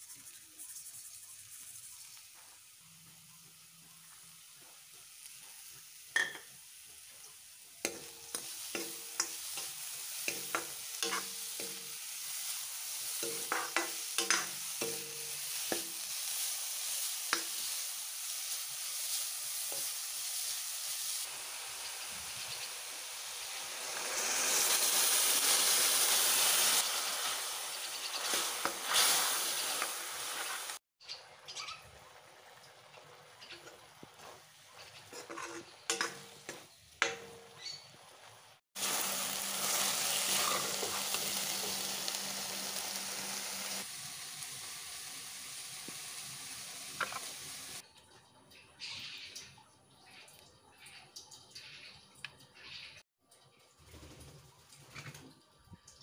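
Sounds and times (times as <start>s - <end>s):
carrots sizzling in a pan: 0.0s - 47.8s
metal ladle scraping a pan: 7.9s - 11.9s, 33.4s - 37.2s.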